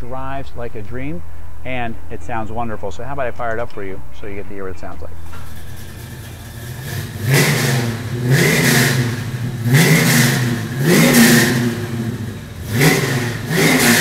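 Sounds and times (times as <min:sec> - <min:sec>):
lumpy engine idle: 0:05.2 - 0:07.4
car engine revving: 0:05.2 - 0:14.0.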